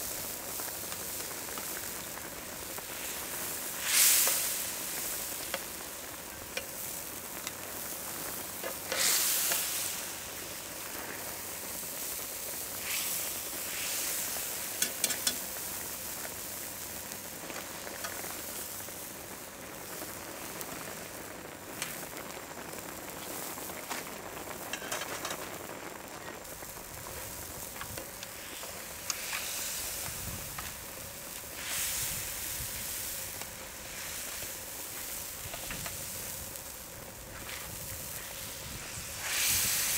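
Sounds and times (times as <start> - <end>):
broth boiling and bubbling: 0.0 - 39.9
metal tongs clicking on pan: 14.8 - 15.4, 24.7 - 25.4.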